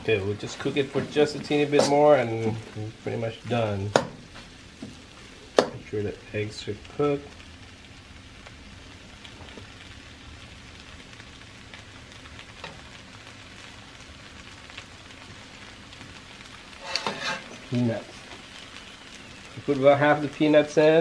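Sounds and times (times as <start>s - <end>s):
food sizzling in a wok: 0.0s - 21.0s
metal spatula scraping a pan: 16.7s - 17.7s.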